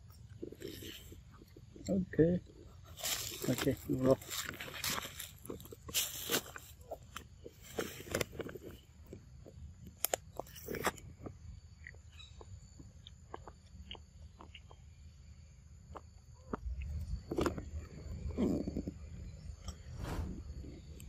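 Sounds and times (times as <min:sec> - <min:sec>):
monkey chewing crunchy snack: 0:00.0 - 0:11.1, 0:15.9 - 0:19.0
low rumble: 0:16.7 - 0:21.0.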